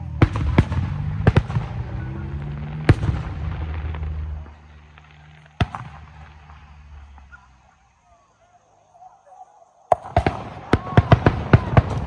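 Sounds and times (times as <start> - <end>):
low rumbling echo: 0.0 - 7.7
fireworks bursting: 0.0 - 9.1, 9.9 - 12.0.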